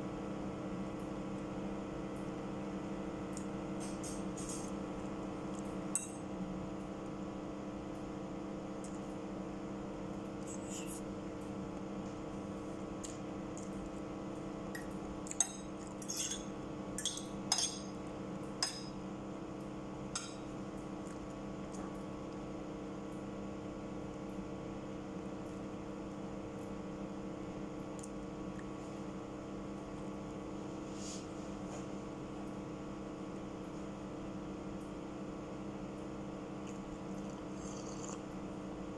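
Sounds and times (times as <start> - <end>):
electrical appliance hum: 0.0 - 38.9
fork clinking against a plate: 14.8 - 17.9.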